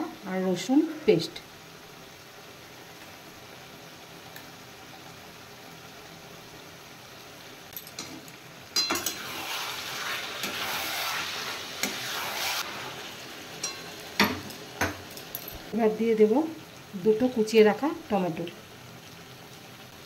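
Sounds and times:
food sizzling in a pan: 0:00.0 - 0:20.0
metal spatula scraping a pan: 0:08.8 - 0:14.0.

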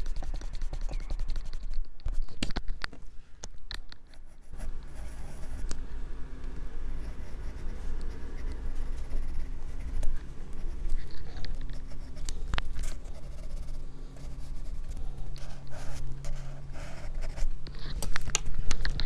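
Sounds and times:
pencil scratching on paper: 0:00.0 - 0:01.8, 0:04.1 - 0:05.6, 0:07.0 - 0:18.0.

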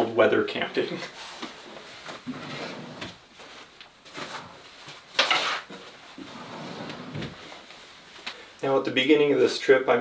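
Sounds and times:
soft fabric handling noises: 0:00.8 - 0:08.6
drawer sliding open: 0:02.2 - 0:03.2, 0:06.2 - 0:07.5.

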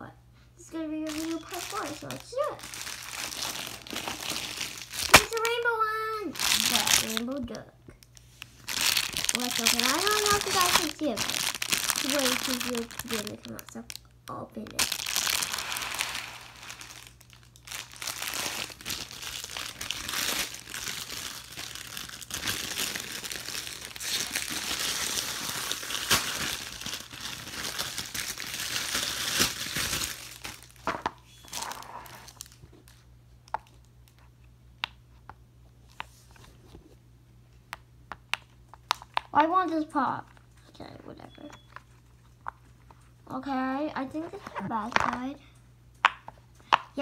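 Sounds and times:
plastic wrapping crinkling and tearing: 0:01.0 - 0:34.3.

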